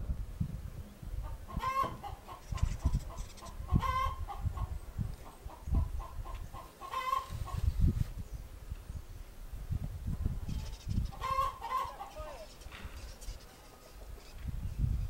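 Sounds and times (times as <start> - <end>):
chickens clucking: 1.2 - 7.9, 10.5 - 14.9.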